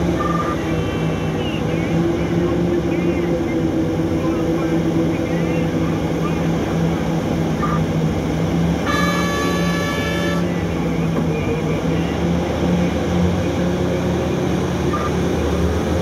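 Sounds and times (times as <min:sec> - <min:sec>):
diesel engines droning: 0:00.0 - 0:16.0
horn: 0:08.8 - 0:10.6.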